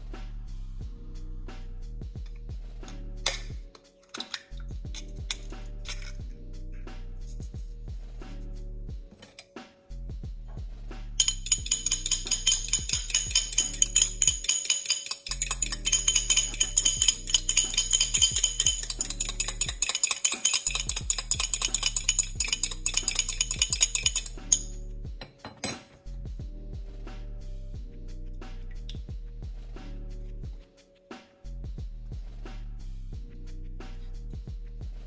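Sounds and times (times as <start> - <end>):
background music: 0.0 - 35.0
fork whisking in ceramic bowl: 11.2 - 24.8.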